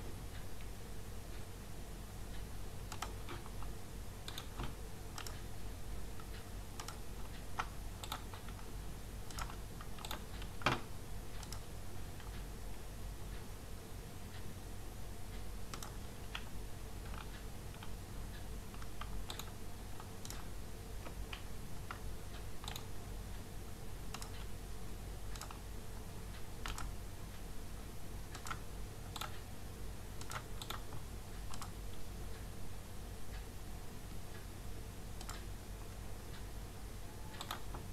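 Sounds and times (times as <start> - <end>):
steady low hum: 0.0 - 37.9
computer mouse clicking: 2.3 - 5.5, 6.2 - 12.5, 15.7 - 22.9, 24.1 - 24.5, 25.3 - 25.6, 26.6 - 27.0, 28.3 - 29.4, 30.2 - 31.8, 35.2 - 35.5, 37.3 - 37.9
keyboard clicking: 2.9 - 3.6, 4.2 - 5.4, 6.3 - 8.7, 9.3 - 10.8, 11.4 - 12.3, 15.7 - 17.9, 22.6 - 22.9, 25.3 - 25.6, 26.6 - 26.9, 28.3 - 29.4, 30.2 - 31.8, 35.2 - 35.5, 37.4 - 37.8.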